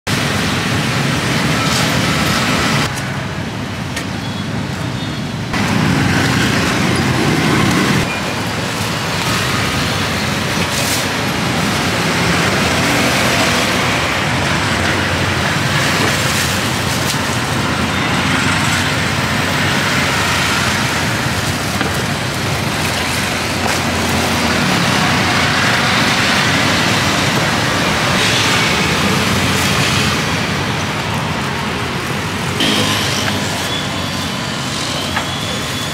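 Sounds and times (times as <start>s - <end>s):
street traffic noise: 0.0s - 35.9s.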